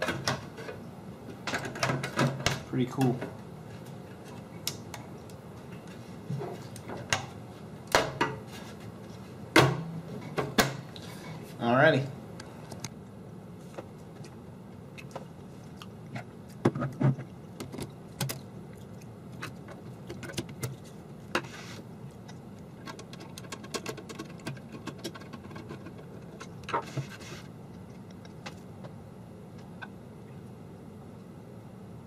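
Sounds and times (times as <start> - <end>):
metal scrape: 26.7 - 27.5.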